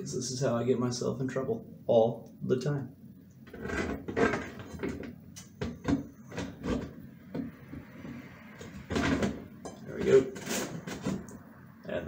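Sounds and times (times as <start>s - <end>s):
light diffuser scraping metal housing: 7.8s - 11.2s.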